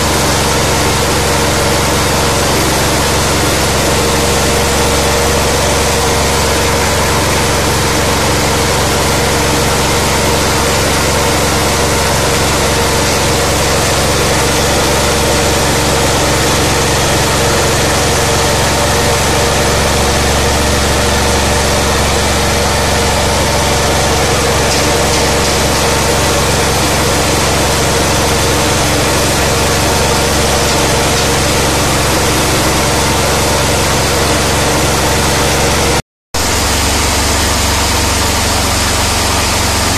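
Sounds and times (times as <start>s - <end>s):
engine running under load: 0.0s - 39.9s
rice grain pouring through machine: 0.0s - 39.9s.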